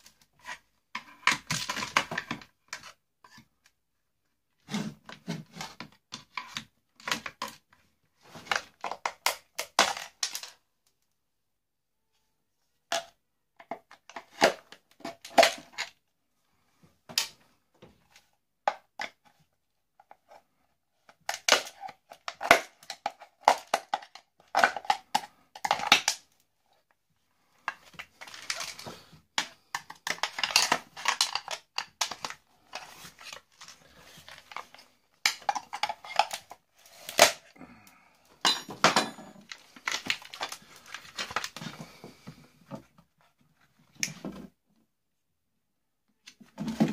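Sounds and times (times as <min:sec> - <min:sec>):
plastic and metal parts clicking: 0:27.7 - 0:37.5.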